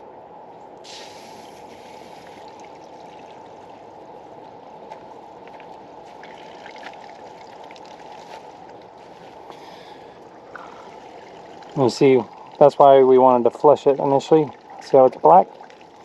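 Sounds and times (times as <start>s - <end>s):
water rushing through hose: 0.8s - 3.8s.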